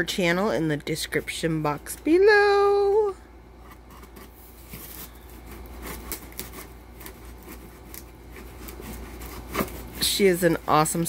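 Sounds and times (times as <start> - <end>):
knife scraping packing tape: 3.8 - 10.2.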